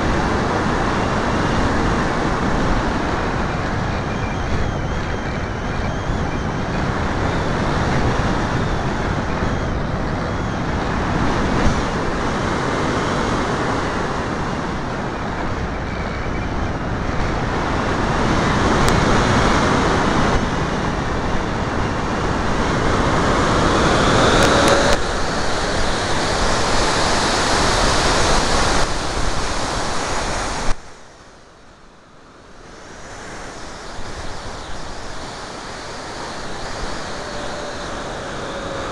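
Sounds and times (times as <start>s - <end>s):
propeller noise: 0.0s - 30.8s, 32.8s - 38.9s
rushing airflow: 0.0s - 30.8s, 32.8s - 38.9s
faint rising whine: 21.1s - 28.8s, 32.7s - 38.9s
click: 24.4s - 25.0s.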